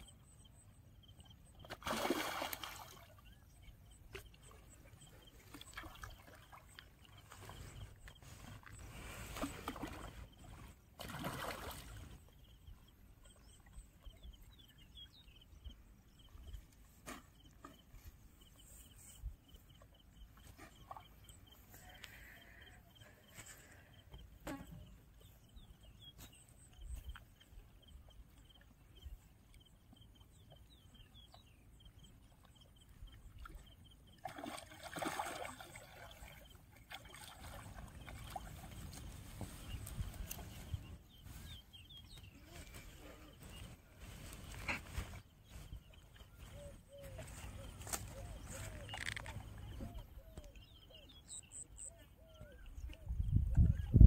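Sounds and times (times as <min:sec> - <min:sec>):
fish thrashing in water: 0:01.8 - 0:03.0, 0:34.2 - 0:38.7.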